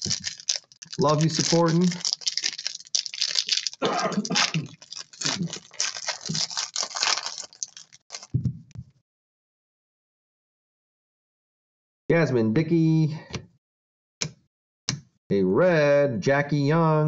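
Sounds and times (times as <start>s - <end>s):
foil pack tearing and crinkling: 0.0s - 8.4s.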